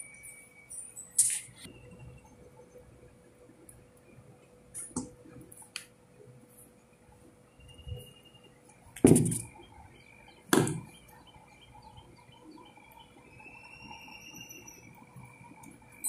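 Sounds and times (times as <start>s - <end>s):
faint bird chirps: 9.4s - 16.0s.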